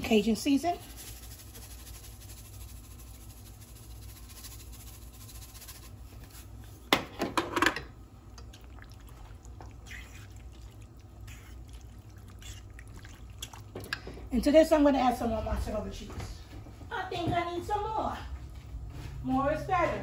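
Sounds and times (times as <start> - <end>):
seasoning canister shaken rattling: 0.0 - 6.5
thick sauce stirred: 0.0 - 6.8, 8.4 - 14.2
steady low hum: 0.0 - 20.0.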